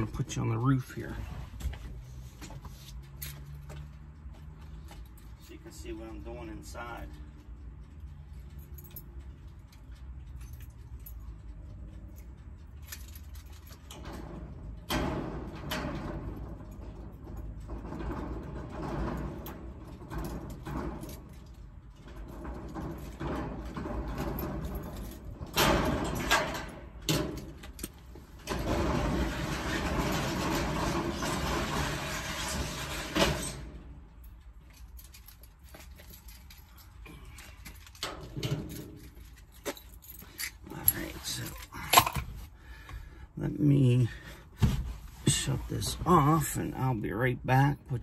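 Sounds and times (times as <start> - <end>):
roll-up door rattling: 13.1 - 39.6
metal door clanks: 13.8 - 34.0, 37.9 - 39.6.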